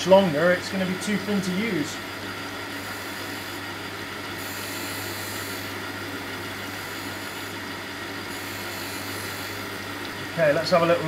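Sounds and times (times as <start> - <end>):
grinder motor hum: 0.0 - 11.0
grinding wheel hissing on steel: 0.0 - 11.0.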